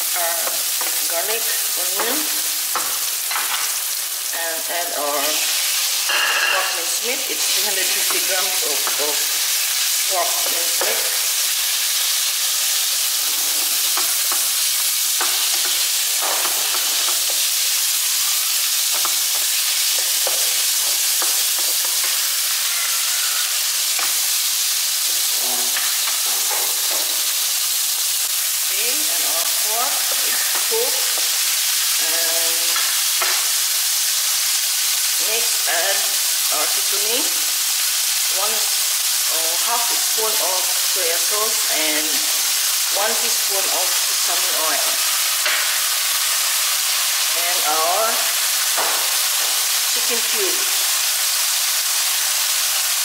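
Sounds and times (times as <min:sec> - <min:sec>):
meat sizzling in a frying pan: 0:00.0 - 0:53.0
spatula scraping and tapping pan: 0:06.0 - 0:06.8, 0:18.9 - 0:24.2.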